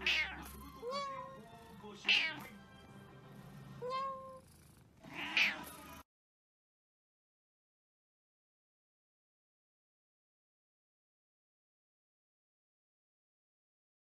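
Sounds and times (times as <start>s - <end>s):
cat meowing: 0.0s - 2.6s, 3.8s - 6.0s.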